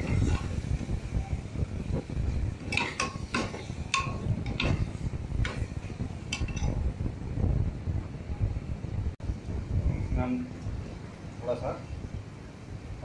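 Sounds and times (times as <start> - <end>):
metal ladle knocking in a pot: 2.7 - 6.8.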